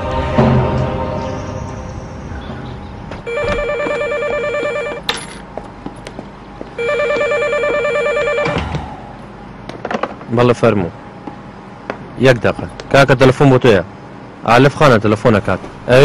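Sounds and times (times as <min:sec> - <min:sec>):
electronic telephone ringing: 0:03.3 - 0:05.1, 0:06.8 - 0:08.6.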